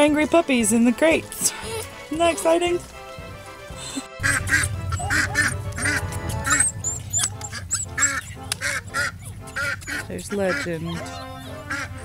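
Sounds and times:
background music: 0:00.0 - 0:12.0
ducks quacking: 0:03.7 - 0:12.0.

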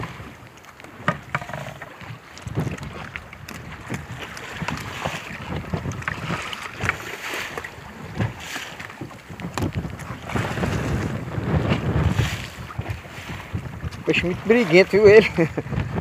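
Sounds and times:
water slapping boat hull: 0:00.0 - 0:16.0
wind buffeting microphone: 0:00.0 - 0:16.0.

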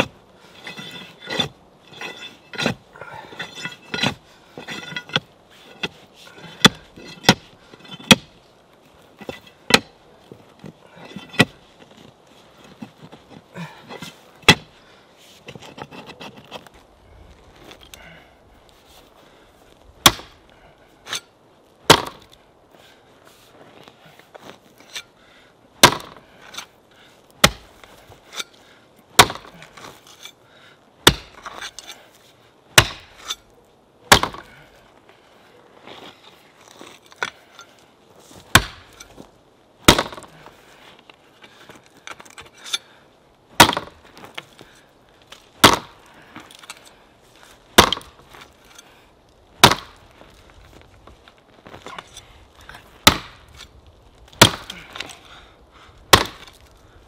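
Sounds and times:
digging tool striking ground: 0:00.0 - 0:08.4, 0:09.1 - 0:10.0, 0:10.6 - 0:12.0, 0:12.6 - 0:14.8, 0:20.0 - 0:20.4, 0:21.9 - 0:22.3, 0:25.8 - 0:26.7, 0:27.4 - 0:28.6, 0:29.2 - 0:30.4, 0:31.0 - 0:32.0, 0:32.7 - 0:33.5, 0:34.1 - 0:34.6, 0:38.4 - 0:39.2, 0:39.8 - 0:40.4, 0:43.6 - 0:44.6, 0:45.3 - 0:46.9, 0:47.7 - 0:48.9, 0:49.6 - 0:50.0, 0:51.7 - 0:53.7, 0:54.3 - 0:55.2, 0:56.1 - 0:56.7.

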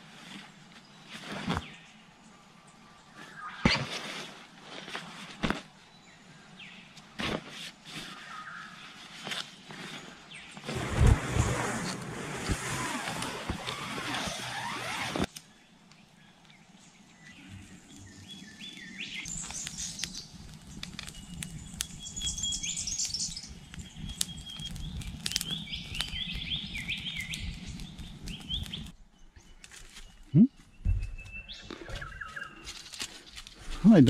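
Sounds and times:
birds chirping: 0:13.7 - 0:34.0
campfire crackling and popping: 0:18.7 - 0:29.0
low thumps: 0:30.4 - 0:31.5.

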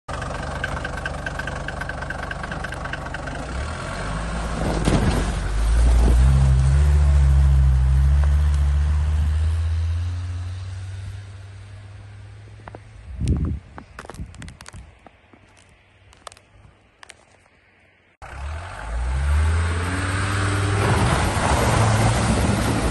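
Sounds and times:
diesel engine driving past: 0:00.1 - 0:12.6, 0:18.2 - 0:22.9.

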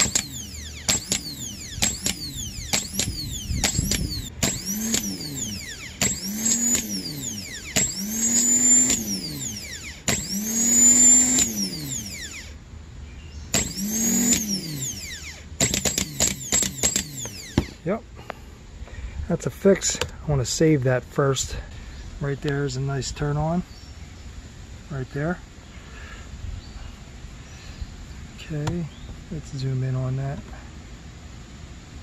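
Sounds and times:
starter motor clicking: 0:00.0 - 0:12.6, 0:13.5 - 0:17.8
starter motor whining: 0:00.0 - 0:12.6, 0:13.5 - 0:17.9.

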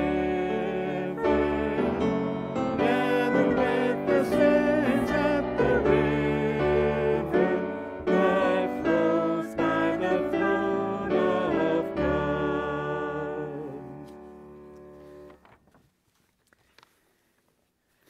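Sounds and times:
person singing with vibrato: 0:00.0 - 0:14.1
piano accompaniment: 0:00.0 - 0:15.4.

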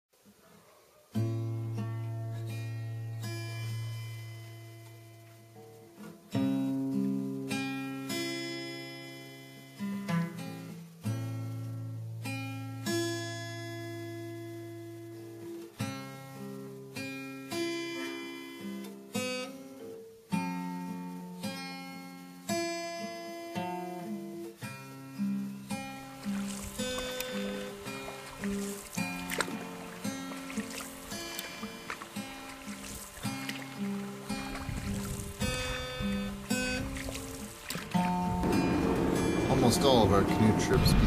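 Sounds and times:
acoustic guitar plucked: 0:01.2 - 0:41.0.

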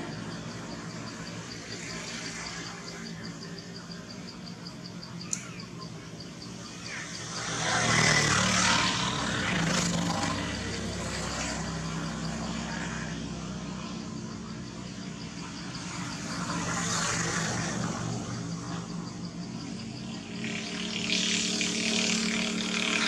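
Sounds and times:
insect chirping: 0:00.0 - 0:23.0
sharp click: 0:05.3 - 0:05.6
motor vehicle passing: 0:06.4 - 0:14.5, 0:15.1 - 0:23.0.

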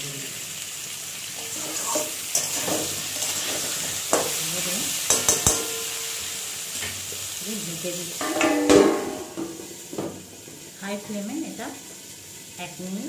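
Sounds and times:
food sizzling in hot oil: 0:00.0 - 0:13.0
metal spatula scraping pan: 0:01.4 - 0:04.4, 0:05.0 - 0:06.3
spatula knocking on pan: 0:05.1 - 0:06.0, 0:08.2 - 0:10.2.

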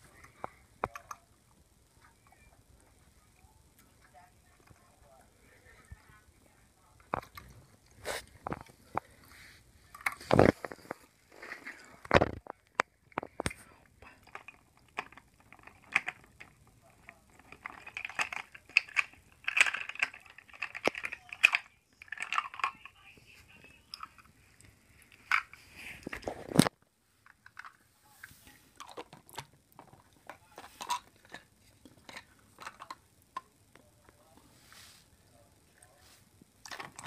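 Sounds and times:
toy car handling clicks and rustles: 0:09.8 - 0:23.1, 0:25.0 - 0:27.8, 0:28.8 - 0:33.5, 0:36.6 - 0:37.0.

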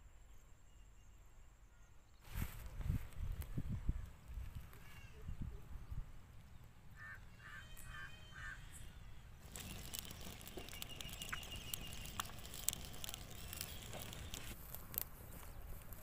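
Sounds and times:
bird calls: 0:06.9 - 0:14.6
burning palm fronds crackling: 0:09.3 - 0:16.0.

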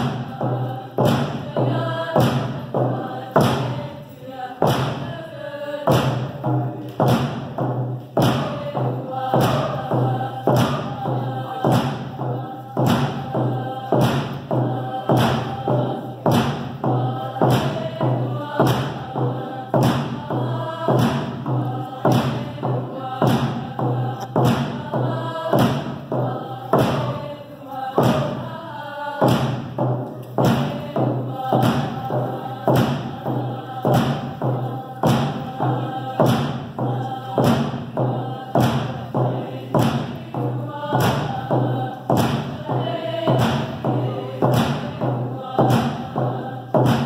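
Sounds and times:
group of voices singing: 0:00.0 - 0:47.0
steady drumbeat: 0:00.0 - 0:47.0.

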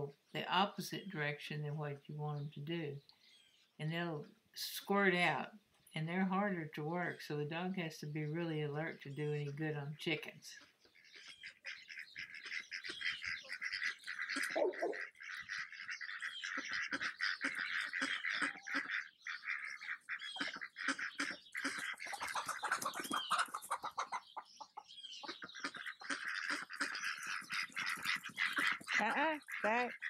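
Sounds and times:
chickens and ducks calling: 0:10.6 - 0:30.0
high chirping and twittering: 0:10.8 - 0:30.0.

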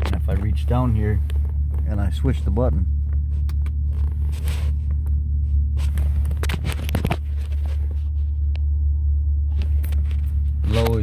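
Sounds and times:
low rumble inside car: 0:00.0 - 0:11.0
hand rustling and scraping: 0:03.2 - 0:08.5.

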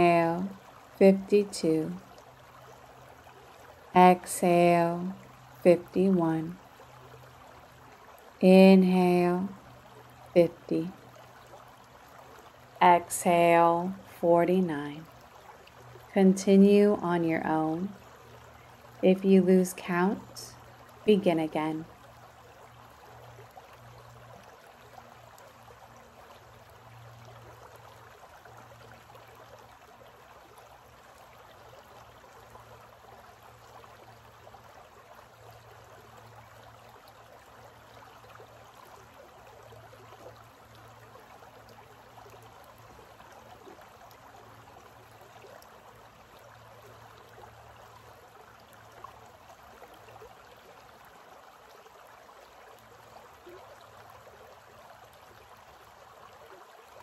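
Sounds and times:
creek water rushing over rocks: 0:01.8 - 0:04.4, 0:05.0 - 0:08.4, 0:21.7 - 0:57.0.

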